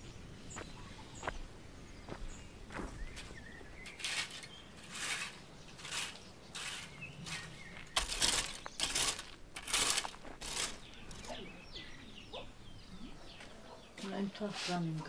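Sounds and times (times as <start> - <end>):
faint bird chirps: 0.0 - 8.9, 10.7 - 14.5
crunching footsteps: 0.0 - 12.5, 13.2 - 15.0.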